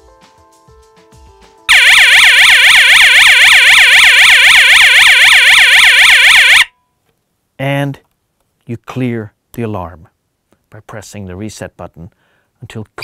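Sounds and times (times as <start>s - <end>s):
electronic alarm siren: 1.7s - 6.7s.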